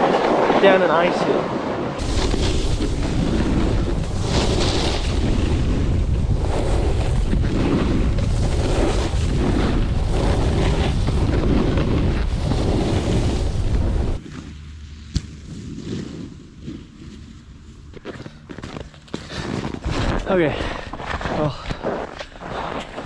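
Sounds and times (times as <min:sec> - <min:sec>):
wind rushing over microphone: 0:00.0 - 0:14.3
snowboard scraping snow: 0:00.0 - 0:18.2, 0:19.2 - 0:23.0.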